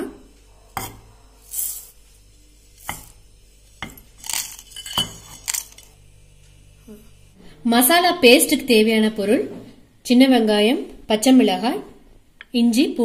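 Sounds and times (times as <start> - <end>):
seeds pouring into jar: 1.5 - 1.9, 4.2 - 5.8
bowls clinking on metal jar: 3.8 - 5.9.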